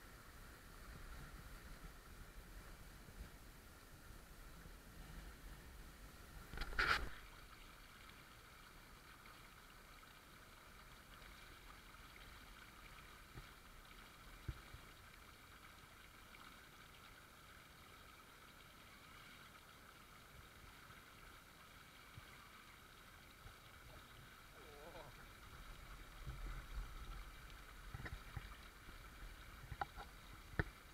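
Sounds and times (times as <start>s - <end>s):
stream water running: 0.0s - 30.9s.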